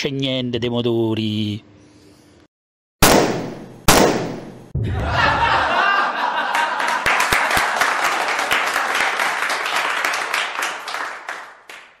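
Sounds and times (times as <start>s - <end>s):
audience applause: 5.8s - 12.0s.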